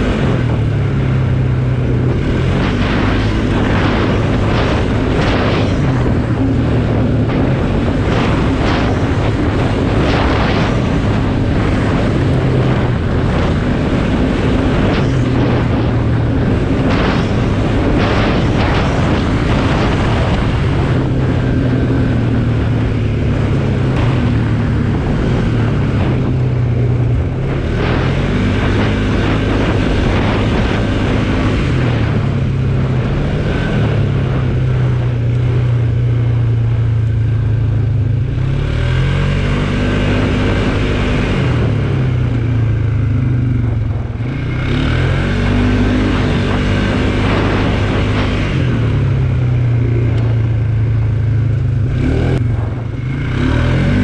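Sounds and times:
atv engine running: 0:00.0 - 0:54.0
wind noise on microphone: 0:00.0 - 0:54.0.

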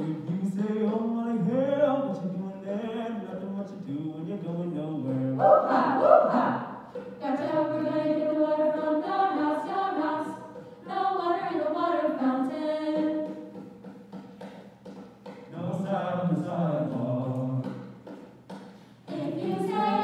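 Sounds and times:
mixed choir singing a cappella: 0:05.1 - 0:13.5, 0:19.0 - 0:20.0.

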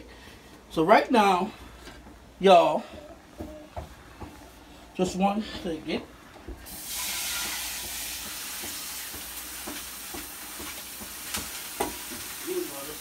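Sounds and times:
pot of water hissing: 0:06.6 - 0:13.0.

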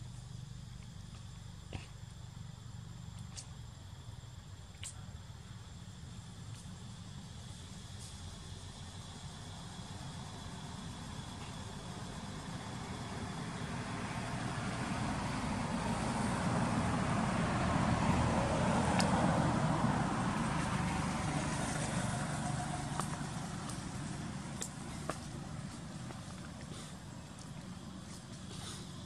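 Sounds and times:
motor vehicle passing by: 0:07.8 - 0:29.0
sharp ticks: 0:18.9 - 0:19.2, 0:21.7 - 0:25.3.

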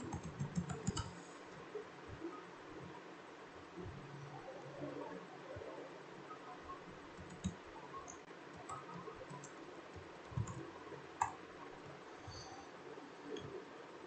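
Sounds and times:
mouse clicks: 0:00.0 - 0:01.2
keyboard typing: 0:00.0 - 0:01.3, 0:07.1 - 0:10.6.

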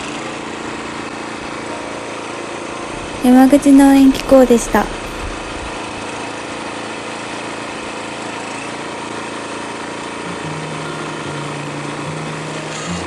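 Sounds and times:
log splitter engine running: 0:00.0 - 0:06.3
low humming tones: 0:02.8 - 0:06.2.

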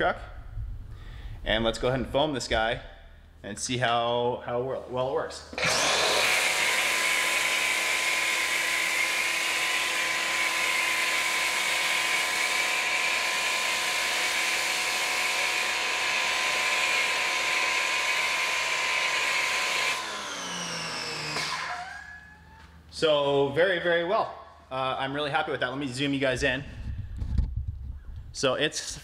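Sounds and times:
pressure washer motor running: 0:05.5 - 0:22.0.

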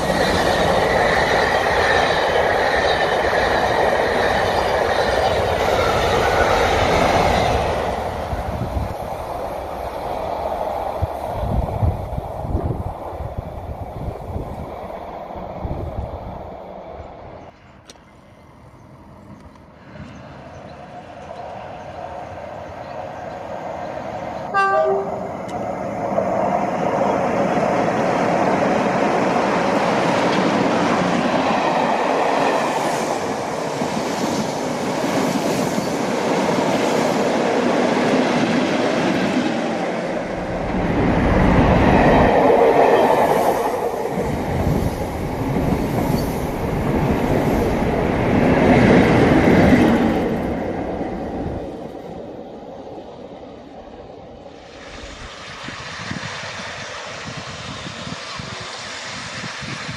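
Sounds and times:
locomotive horn blast: 0:24.5 - 0:25.5.

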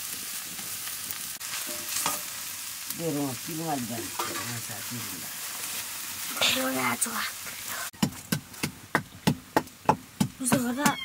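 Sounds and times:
vegetables sizzling in a wok: 0:00.0 - 0:08.7
metal spatula stirring: 0:01.4 - 0:02.4, 0:04.0 - 0:06.8.

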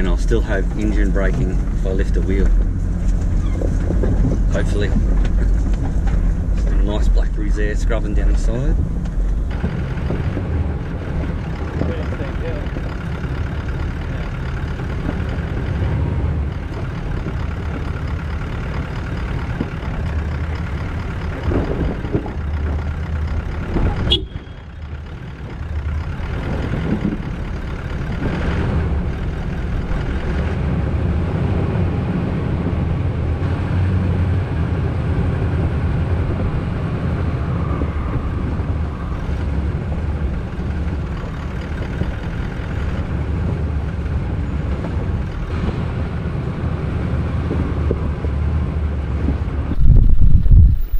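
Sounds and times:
vehicle rolling over rocks: 0:00.0 - 0:32.8
engine low drone: 0:00.0 - 0:50.9.

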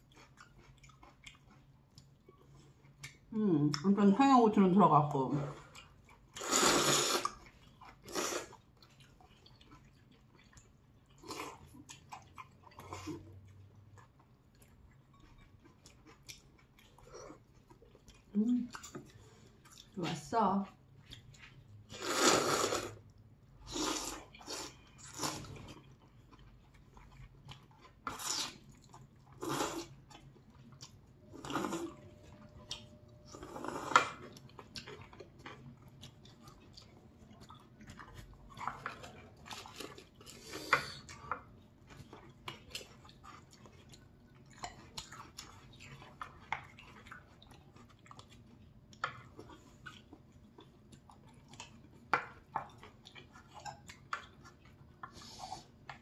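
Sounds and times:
chewing: 0:00.0 - 0:04.0, 0:05.3 - 0:56.0
noodles being slurped: 0:05.6 - 0:09.6, 0:21.8 - 0:23.0, 0:23.6 - 0:27.2, 0:27.9 - 0:28.7, 0:29.4 - 0:30.0, 0:31.2 - 0:32.1.

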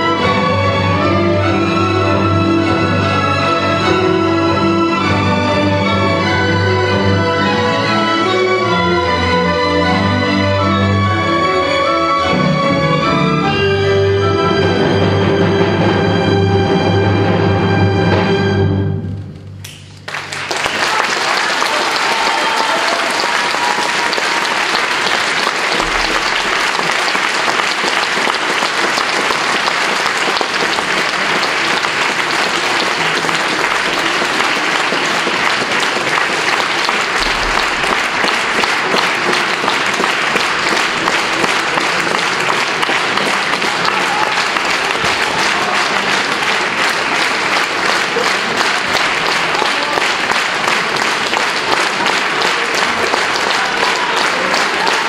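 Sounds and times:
audience applauding: 0:19.8 - 0:55.0.

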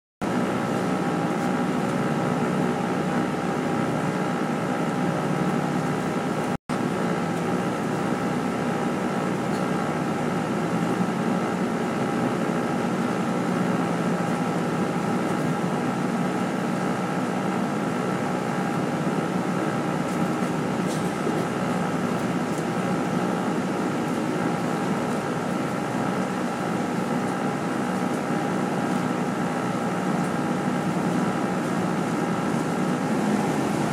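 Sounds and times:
bus engine drone: 0:00.2 - 0:33.9
road noise: 0:22.4 - 0:33.9.

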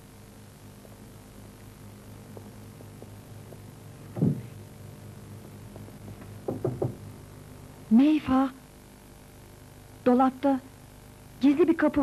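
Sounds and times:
steady electrical hum: 0:00.0 - 0:12.0
quick knocks: 0:04.1 - 0:04.5, 0:06.2 - 0:07.0.

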